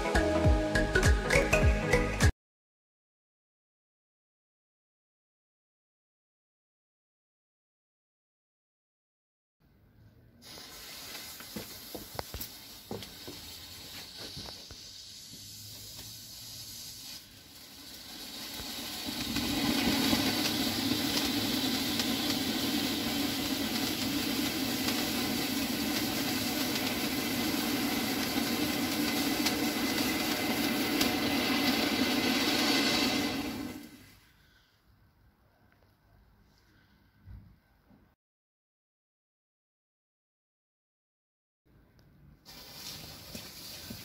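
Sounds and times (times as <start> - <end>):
firework fountain hissing: 10.4 - 34.3, 42.4 - 44.0
fuse sputtering and crackling: 17.6 - 34.0.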